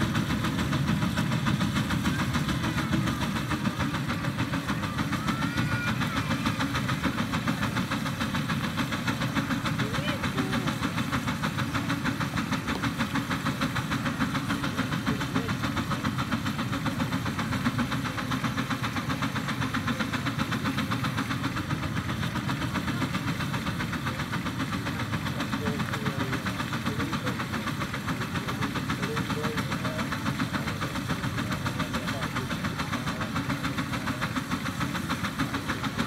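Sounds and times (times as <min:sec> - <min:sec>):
steam engine exhaust chuffing: 0:00.0 - 0:36.0.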